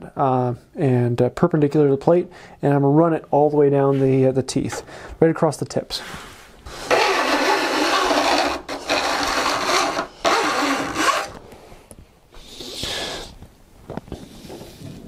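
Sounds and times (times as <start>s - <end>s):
steel file rasping on saw teeth: 6.7s - 11.4s.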